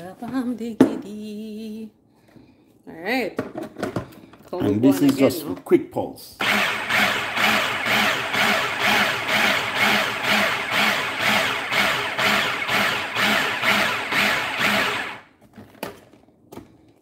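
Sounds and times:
food processor running: 6.4s - 15.3s.

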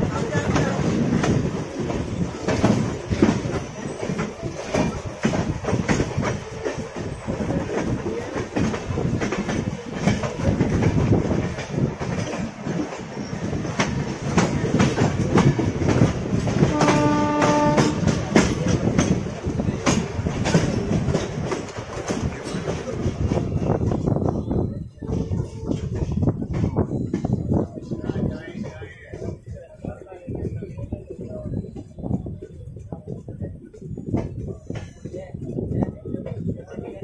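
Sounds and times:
train wheels clacking over rail joints: 0.0s - 24.1s
train horn: 16.6s - 18.2s.

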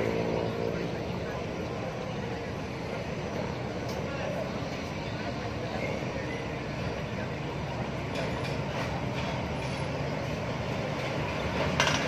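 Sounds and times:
motorbike engines rumbling: 0.0s - 12.0s.

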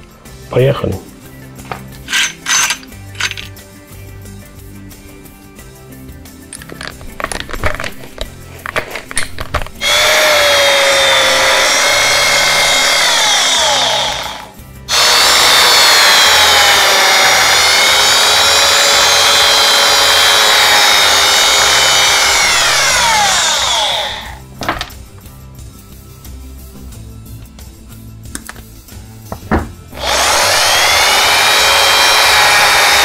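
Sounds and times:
mini drill whining: 2.1s - 3.5s, 6.7s - 24.4s, 30.0s - 33.0s.

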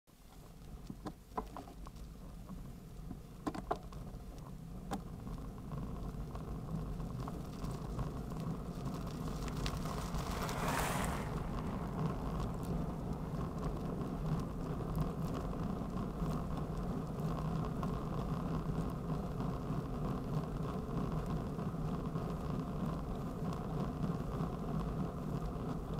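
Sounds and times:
wind noise: 4.6s - 20.9s
road rumble: 5.0s - 18.9s
car passing: 7.8s - 16.4s.

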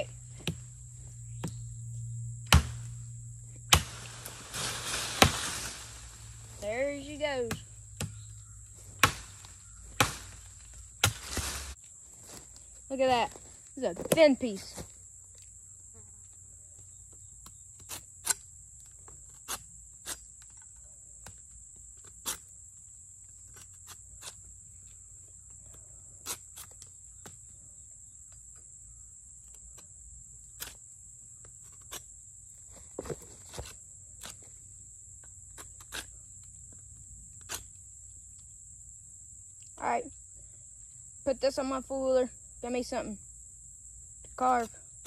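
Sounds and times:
high insect drone: 0.0s - 45.0s.

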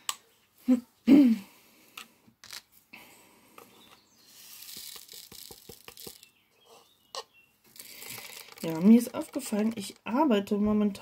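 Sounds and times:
small plastic clicks: 4.6s - 6.3s, 7.2s - 10.1s.

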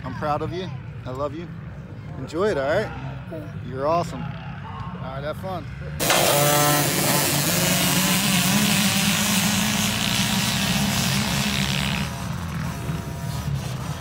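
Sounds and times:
dirt bike engine revving: 6.0s - 14.0s.

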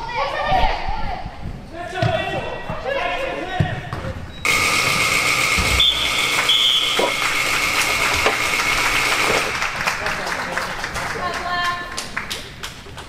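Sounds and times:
game buzzer blast: 4.5s - 9.5s.

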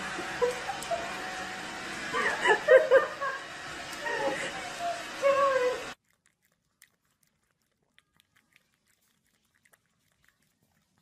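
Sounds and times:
puppy licking and smacking lips: 6.0s - 11.0s.

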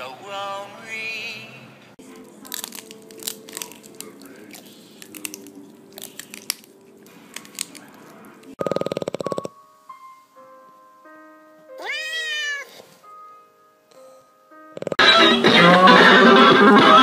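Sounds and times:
crunching bites into vegetable stalk: 2.5s - 8.0s.

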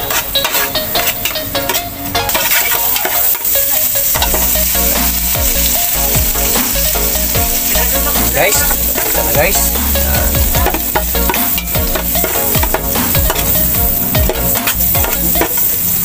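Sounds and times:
metal ladle scraping a pot: 0.0s - 4.8s
garlic sizzling in a pot: 0.0s - 16.0s.

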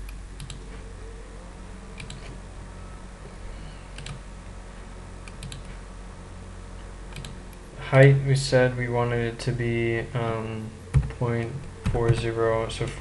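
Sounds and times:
computer mouse clicking: 0.0s - 0.8s, 2.0s - 2.4s, 3.9s - 4.2s, 5.2s - 5.8s, 7.1s - 7.4s
low electrical hum: 0.0s - 13.0s.

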